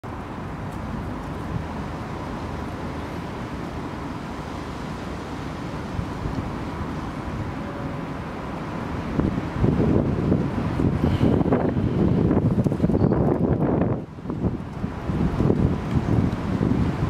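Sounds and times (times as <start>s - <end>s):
low rumble of outdoor background: 0.0s - 17.0s.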